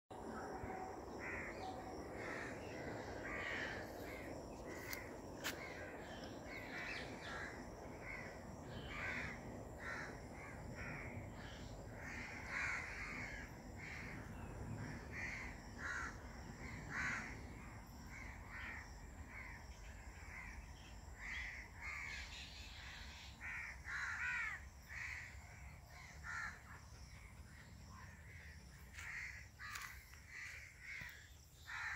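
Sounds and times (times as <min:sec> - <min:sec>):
low rumbling background noise: 0:00.1 - 0:24.0.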